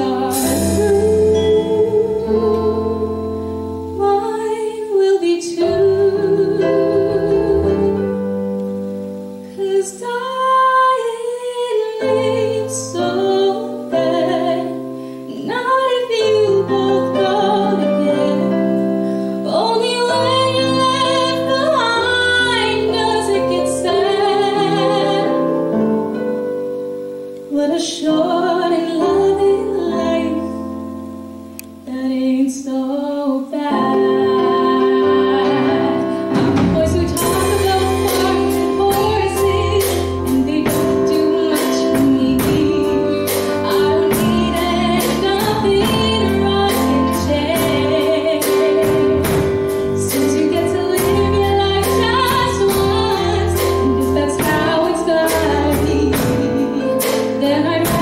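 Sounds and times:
drum kit: 0.0 - 4.6, 33.8 - 58.0
keyboard: 0.0 - 58.0
woman singing a ballad: 0.0 - 58.0.

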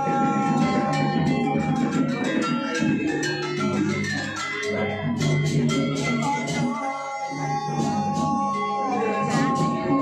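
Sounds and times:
gamelan metallophones playing: 0.0 - 10.0.

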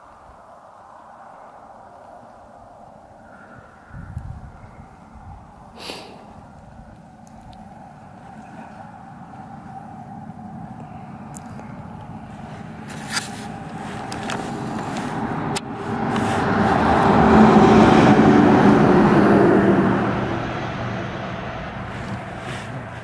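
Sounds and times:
motor vehicle passing: 2.2 - 23.0.

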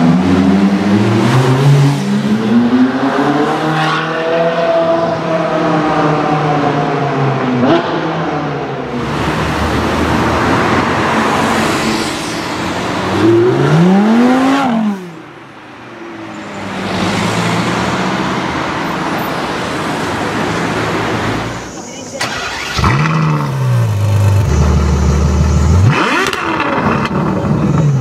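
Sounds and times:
sports car engines accelerating: 0.0 - 11.6, 13.0 - 15.3, 22.5 - 28.0
engine revving sharply: 22.2 - 24.9.

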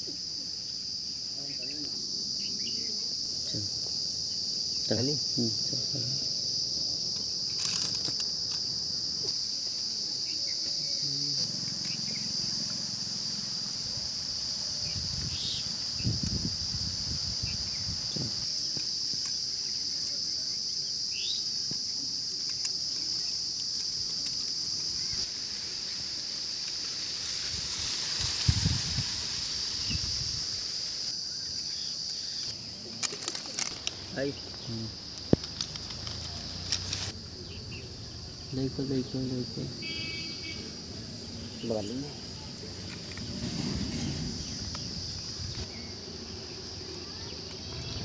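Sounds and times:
insects droning: 0.0 - 48.0
short rising insect chirps: 24.9 - 31.9, 42.3 - 48.0.

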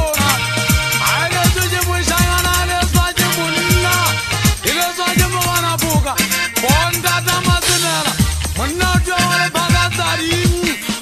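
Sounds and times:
music with held notes over beat: 0.0 - 11.0
deep drum with dropping pitch: 2.2 - 5.4.

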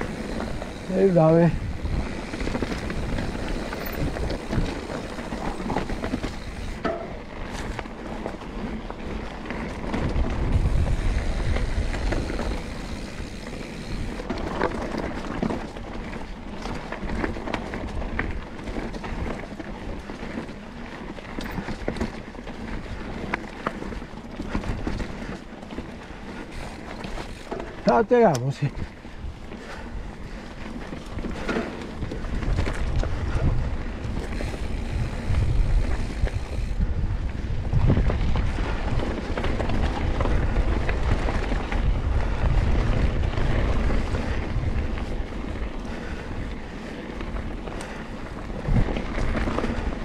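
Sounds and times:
wind on microphone: 0.0 - 7.0, 9.7 - 14.6, 28.6 - 50.0
tyres crunching over stones: 0.0 - 19.5
bike rattling: 0.0 - 50.0.

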